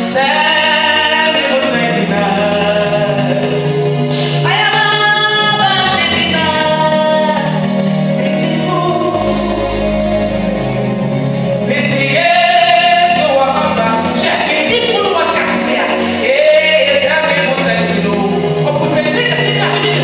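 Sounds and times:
instrumental backing with bass line: 0.0 - 20.0
person singing gospel: 0.0 - 20.0.

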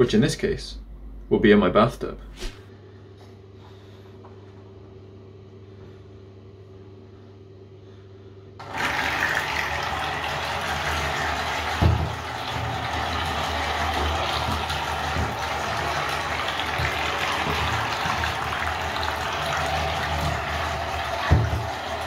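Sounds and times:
faint steady hum: 0.0 - 8.6
propeller churning water: 8.6 - 22.0.

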